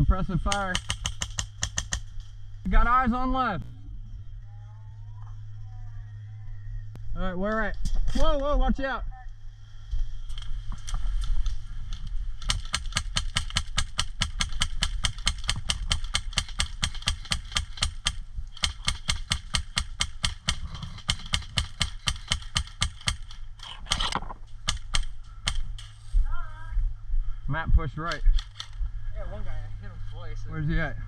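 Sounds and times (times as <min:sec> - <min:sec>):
airsoft rifle shots: 0:00.4 - 0:02.1, 0:12.4 - 0:25.8.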